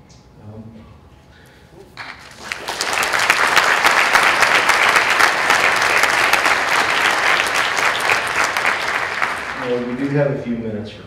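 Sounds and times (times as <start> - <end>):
audience applauding: 2.0 - 10.7.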